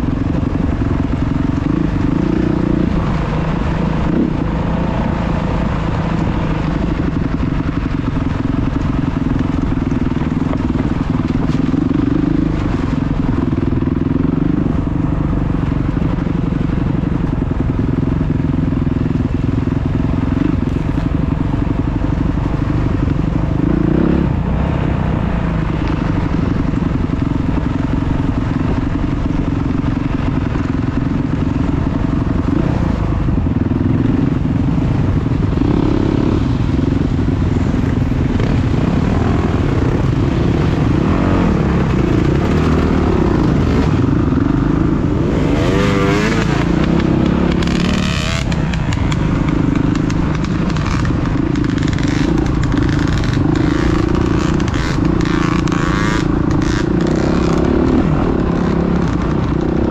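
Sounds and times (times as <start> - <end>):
dirt bike engine revving: 0.0 - 15.0, 30.0 - 59.9.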